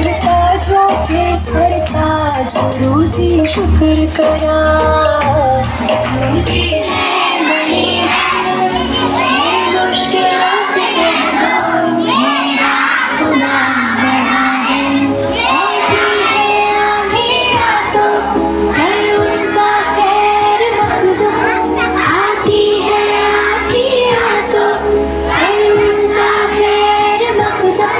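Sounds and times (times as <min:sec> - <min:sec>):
background music: 0:00.0 - 0:27.9
children singing a prayer: 0:06.4 - 0:27.9.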